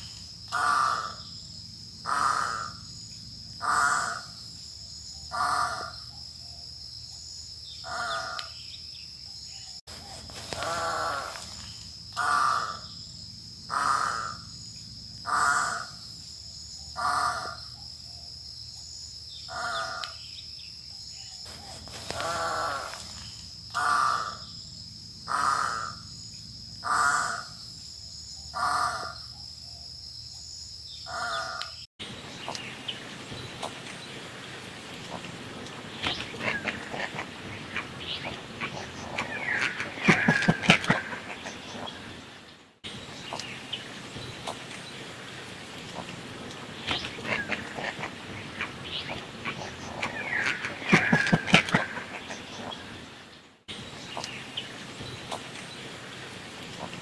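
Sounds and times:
egret harsh croaks: 10.5 - 11.5, 35.1 - 42.0, 46.0 - 52.7.

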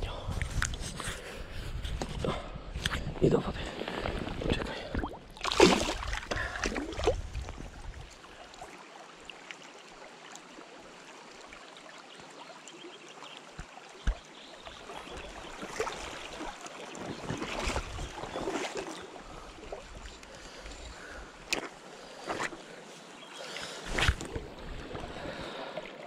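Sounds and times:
flowing river water: 3.3 - 26.0
splashing in shallow water: 3.7 - 8.1, 13.5 - 26.0.

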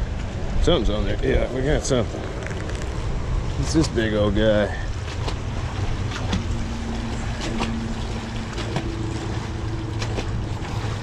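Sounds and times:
low drone with held tones: 5.9 - 11.0.

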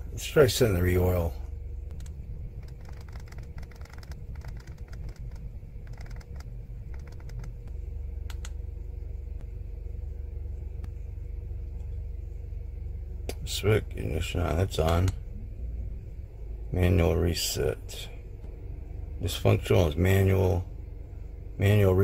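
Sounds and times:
steady low hum: 0.0 - 22.0
buttons clicking: 8.3 - 8.6.

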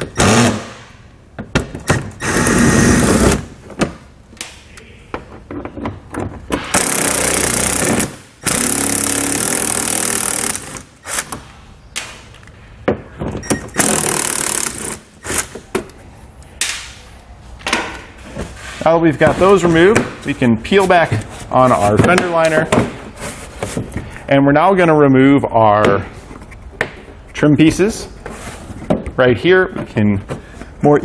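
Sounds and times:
impact driver bursts: 0.0 - 0.8, 1.8 - 3.5, 6.7 - 11.3, 13.7 - 15.4.

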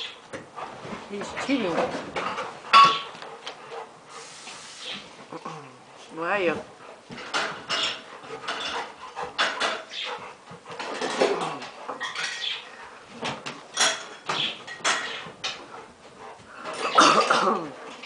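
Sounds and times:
puppies scuffling: 0.0 - 18.0
small dog noises: 7.7 - 12.9.

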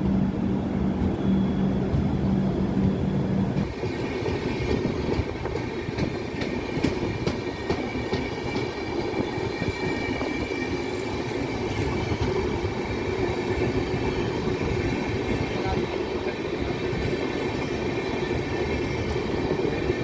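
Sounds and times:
train wheels rumbling on rails: 0.0 - 20.0.

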